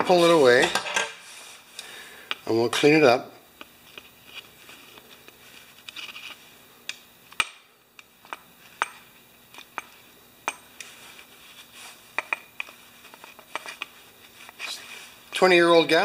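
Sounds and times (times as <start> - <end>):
hand tool clicking and scraping: 12.2 - 14.8.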